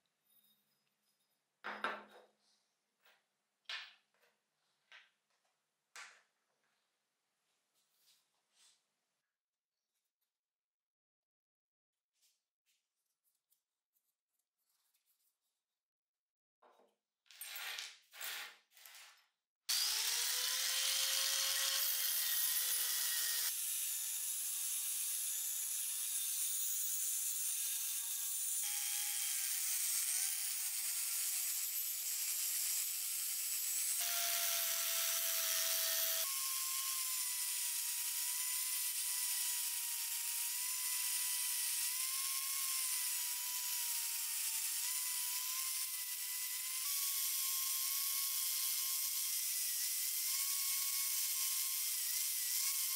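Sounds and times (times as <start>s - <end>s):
power sander grinding metal: 19.7s - 52.9s.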